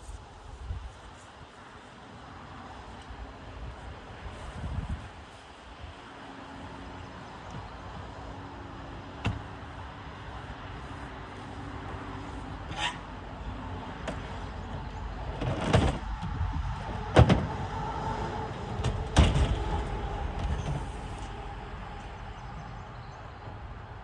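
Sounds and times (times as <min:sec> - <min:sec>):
knocks on truck bed: 0:17.1 - 0:17.6.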